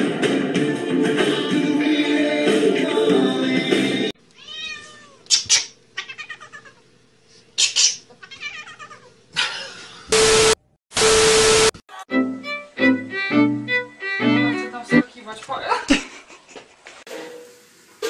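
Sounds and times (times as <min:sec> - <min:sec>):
cat meowing: 0:04.4 - 0:05.3, 0:06.0 - 0:06.8, 0:08.1 - 0:09.1.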